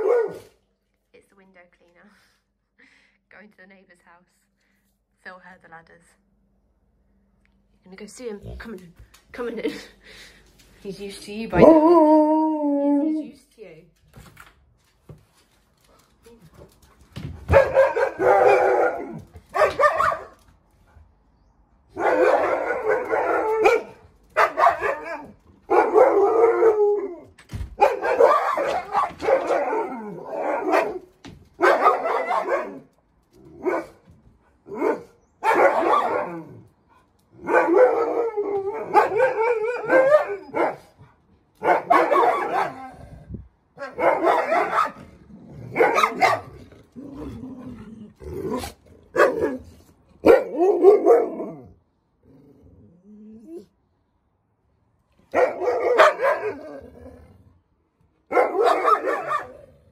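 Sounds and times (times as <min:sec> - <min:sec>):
dog howling and barking: 0:11.5 - 0:13.3, 0:17.5 - 0:20.3, 0:21.9 - 0:34.0, 0:34.6 - 0:36.7, 0:37.4 - 0:41.0, 0:41.6 - 0:43.1, 0:43.8 - 0:47.6, 0:48.3 - 0:51.8, 0:55.3 - 0:57.2, 0:58.3 - 0:59.9.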